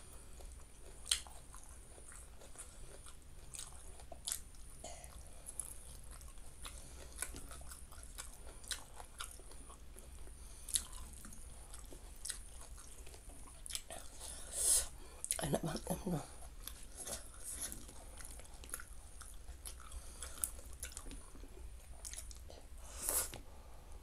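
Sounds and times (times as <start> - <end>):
person chewing: 0.1 - 15.5, 16.2 - 23.4.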